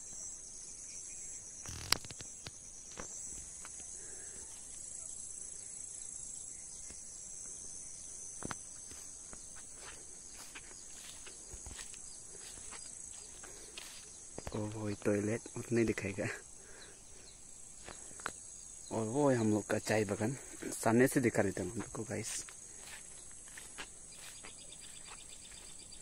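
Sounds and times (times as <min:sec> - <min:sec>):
insects chirring: 0:00.0 - 0:26.0
sharp clicks: 0:01.6 - 0:02.6.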